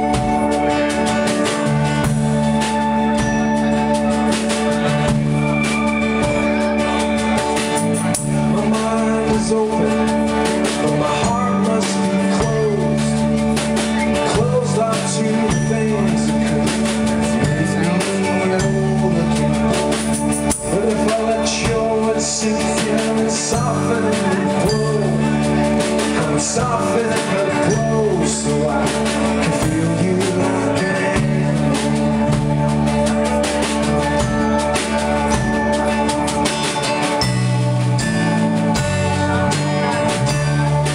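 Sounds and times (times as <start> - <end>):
rock band playing: 0.0 - 40.9
man singing: 8.2 - 33.4.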